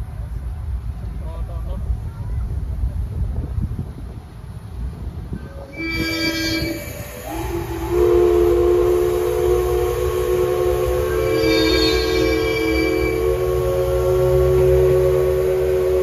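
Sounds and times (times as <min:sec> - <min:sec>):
steam locomotive whistle: 0:05.4 - 0:16.0.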